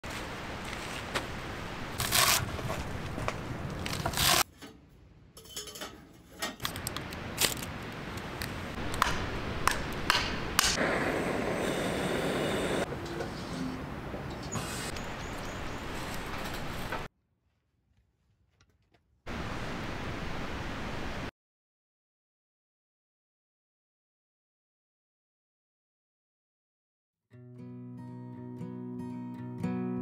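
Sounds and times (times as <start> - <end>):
steady hiss: 10.7 - 12.9.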